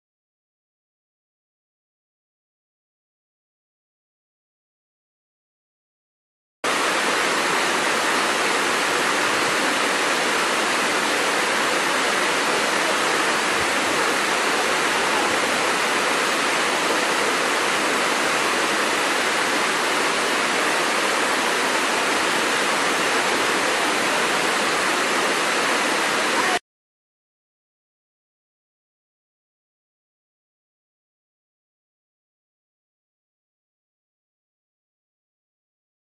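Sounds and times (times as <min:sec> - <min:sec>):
waterfall rushing: 0:06.7 - 0:26.6.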